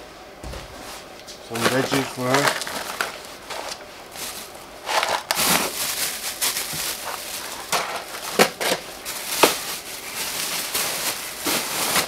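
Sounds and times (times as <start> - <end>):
plastic bags rustling: 0.6 - 12.0.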